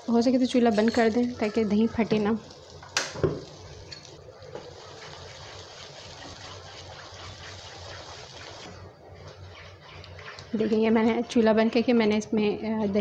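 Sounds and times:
yogurt sizzling in a pan: 0:00.1 - 0:08.8
wooden spatula stirring: 0:04.6 - 0:11.3.

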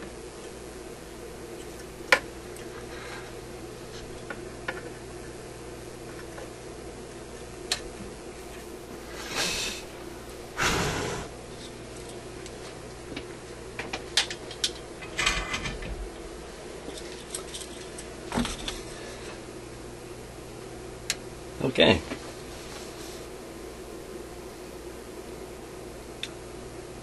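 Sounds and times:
low electrical hum: 0:00.0 - 0:27.0
soldering iron hissing: 0:08.3 - 0:11.4
light clicks of handled parts: 0:16.9 - 0:18.8.

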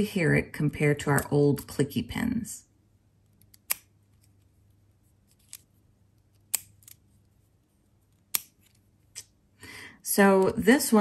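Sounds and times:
plastic pen clicks: 0:03.4 - 0:04.3, 0:05.4 - 0:07.0, 0:08.1 - 0:08.8.

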